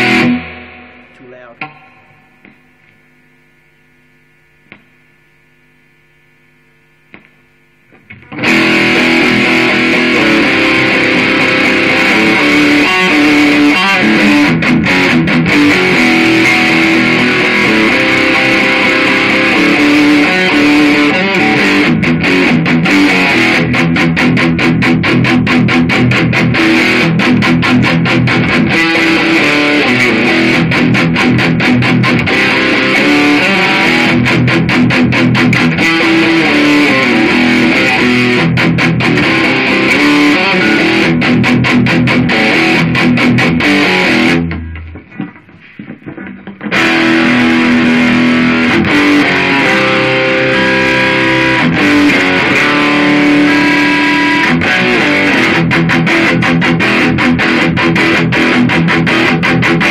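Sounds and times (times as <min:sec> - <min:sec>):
distorted electric guitar riffs: 0:00.0 - 0:59.9
low steady hum: 0:00.4 - 0:08.2.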